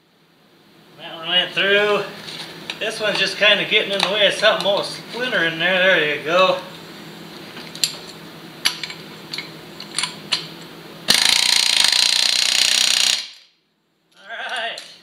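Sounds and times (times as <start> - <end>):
pneumatic air hammer: 11.1 - 13.5.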